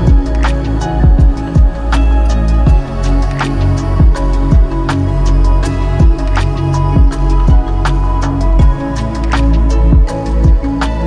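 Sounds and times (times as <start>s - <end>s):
deep kick drums: 0.0s - 9.1s, 9.8s - 10.9s
sustained bass and synth chords: 0.0s - 11.0s.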